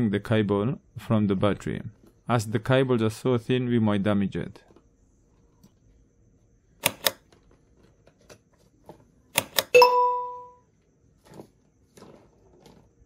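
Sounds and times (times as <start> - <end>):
bell-like chime: 9.8 - 10.6.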